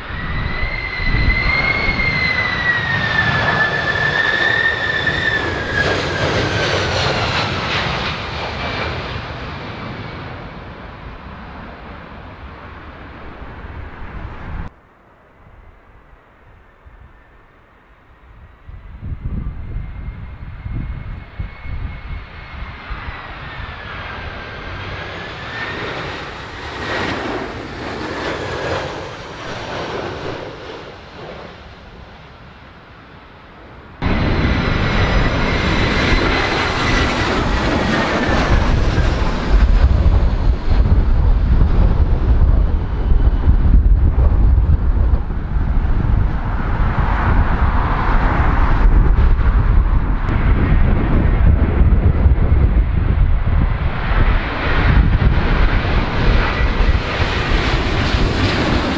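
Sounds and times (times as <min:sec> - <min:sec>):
wind rumbling on microphone: 0:00.0 - 0:32.2, 0:33.7 - 0:58.9
jet engine roar and whine: 0:00.0 - 0:58.9.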